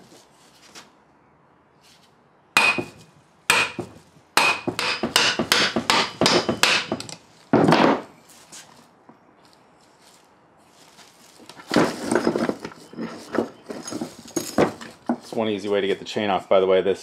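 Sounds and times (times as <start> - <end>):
hammer striking metal: 2.6 - 7.1.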